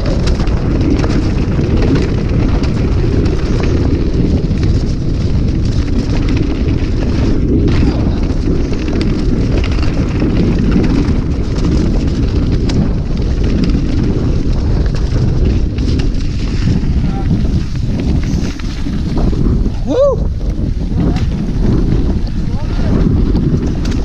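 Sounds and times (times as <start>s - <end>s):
bike rattling and knocking: 0.0s - 24.0s
bike tyre noise: 0.0s - 24.0s
wind rumble on microphone: 0.0s - 24.0s.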